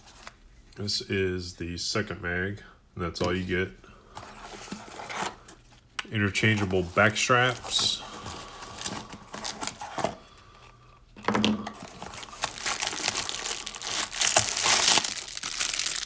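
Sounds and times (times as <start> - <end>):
cardboard and plastic bags rustling: 6.4 - 10.2, 11.7 - 16.0.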